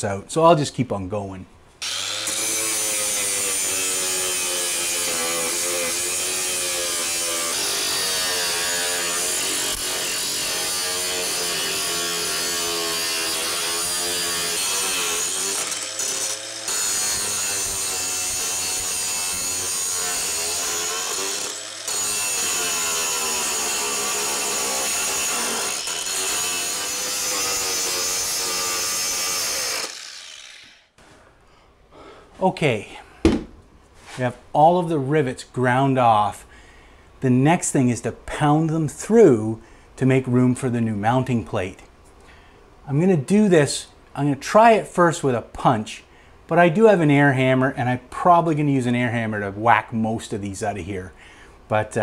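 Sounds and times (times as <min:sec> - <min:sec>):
angle grinder grinding metal: 0:01.8 - 0:31.0.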